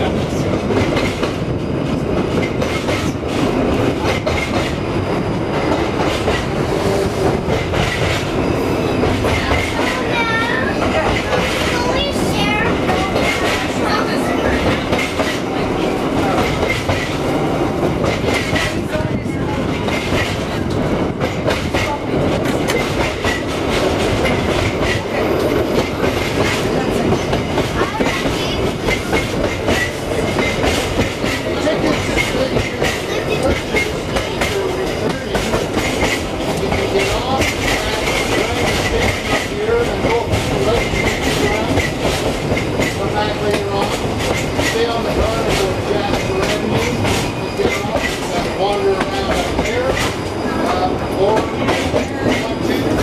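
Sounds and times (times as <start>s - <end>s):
streetcar rolling rumble: 0.0s - 53.0s.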